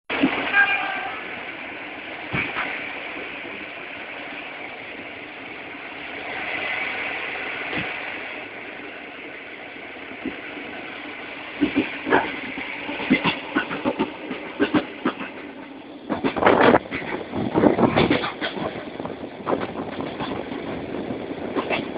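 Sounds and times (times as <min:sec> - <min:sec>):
train rumble and hiss: 0:00.1 - 0:21.9
wheel clacks over rail joints: 0:02.3 - 0:02.9, 0:11.5 - 0:21.9.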